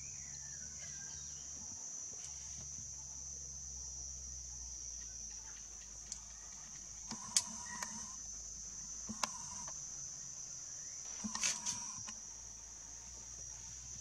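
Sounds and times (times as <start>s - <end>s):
high-pitched insect drone: 6.0s - 14.0s
sharp clicks: 7.0s - 8.2s, 9.1s - 9.8s.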